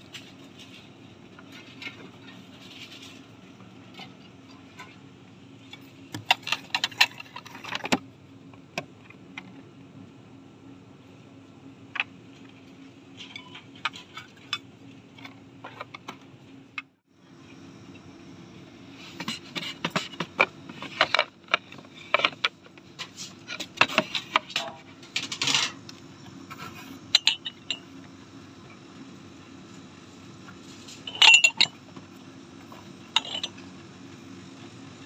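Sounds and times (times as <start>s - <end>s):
steady low hum: 0.0s - 35.0s
merchandise clicks and clinks: 5.6s - 9.6s, 19.1s - 28.2s, 30.4s - 33.9s.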